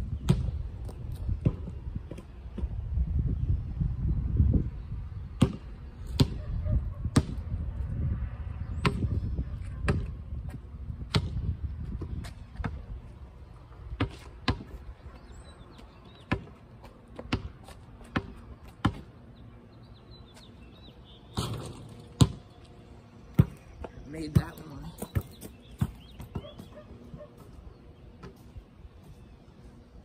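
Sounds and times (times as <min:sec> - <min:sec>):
rubber ball bouncing on concrete: 0:08.8 - 0:10.2
birds chirping faintly: 0:17.9 - 0:30.0.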